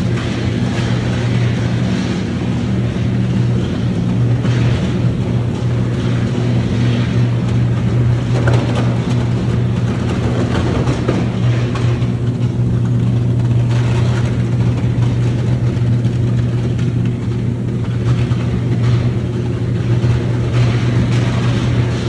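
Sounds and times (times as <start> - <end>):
arc furnace low hum: 0.0 - 22.0.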